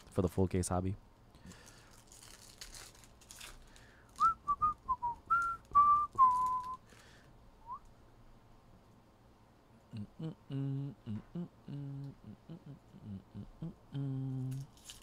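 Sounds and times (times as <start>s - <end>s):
person whistling a tune: 4.2s - 6.8s, 7.6s - 7.9s.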